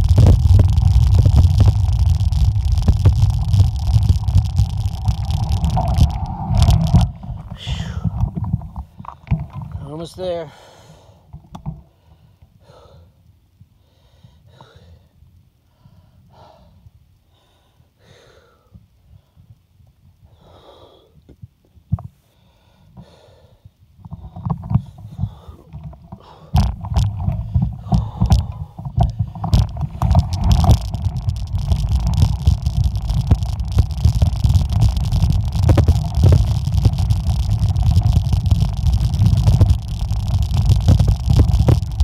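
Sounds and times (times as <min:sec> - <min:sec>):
tyres rumbling on gravel: 0:00.0 - 0:09.0, 0:26.6 - 0:42.0
bike rattling clicks: 0:00.0 - 0:09.8, 0:24.1 - 0:42.0
wind rumble on microphone: 0:00.0 - 0:10.1, 0:24.0 - 0:42.0
heavy breathing: 0:07.5 - 0:08.2, 0:10.5 - 0:11.2.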